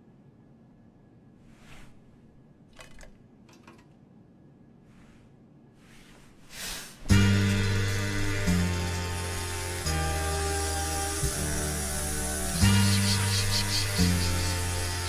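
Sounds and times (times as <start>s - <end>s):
faint rustles: 1.4s - 2.4s, 4.8s - 7.1s.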